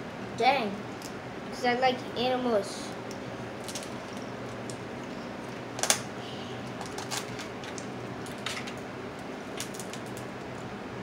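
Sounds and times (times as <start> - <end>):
crab shells cracking: 3.0 - 6.1, 6.7 - 10.6.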